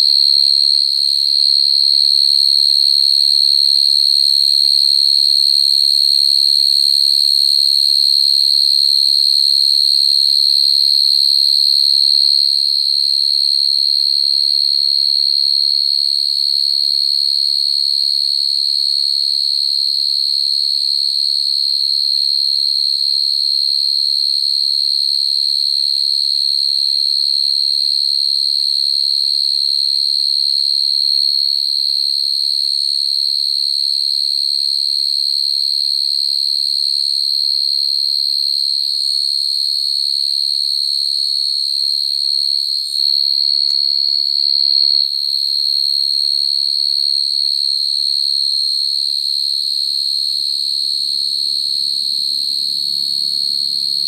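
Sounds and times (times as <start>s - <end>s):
cricket trilling: 2.3s - 12.6s, 45.8s - 54.0s.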